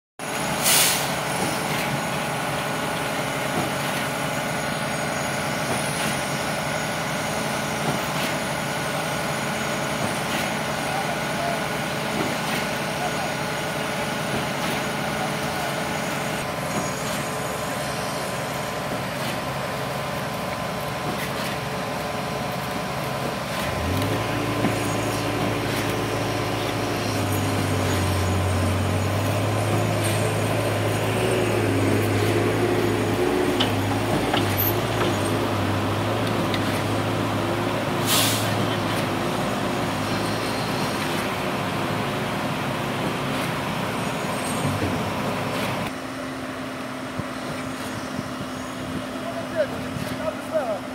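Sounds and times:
diesel engine running under load: 0.2 - 50.9
sharp hiss: 0.6 - 1.3, 38.0 - 38.6.

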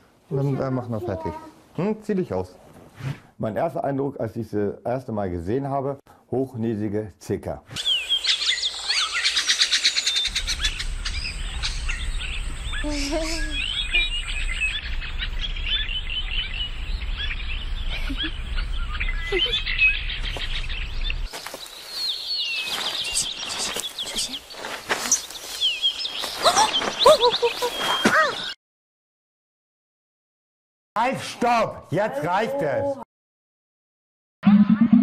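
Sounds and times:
birds chirping: 7.8 - 28.6.

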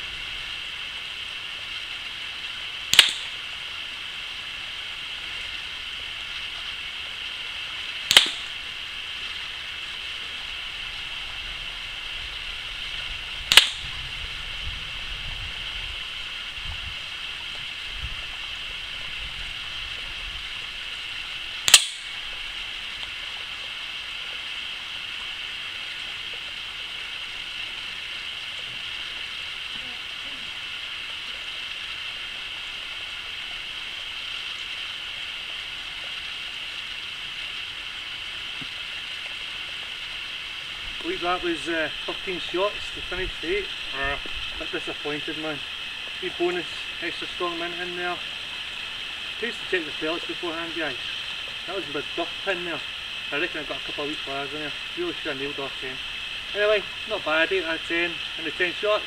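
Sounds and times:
steady background hiss: 0.0 - 59.0
air rifle shots: 3.0 - 3.3, 8.1 - 8.5, 13.5 - 13.9, 21.7 - 22.1.

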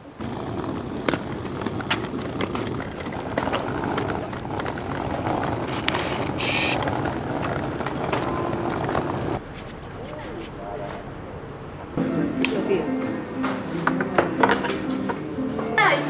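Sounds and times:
suitcase wheels rattling on concrete: 0.0 - 9.4.

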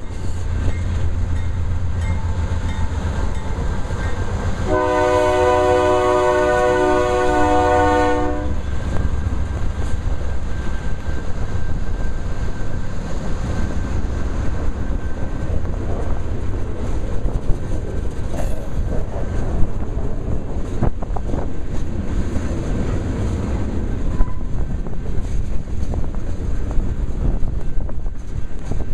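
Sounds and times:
train wheels rumbling on rails: 0.0 - 28.9
train horn: 4.6 - 8.6, 24.2 - 24.5
wind buffeting microphone: 5.6 - 28.9.

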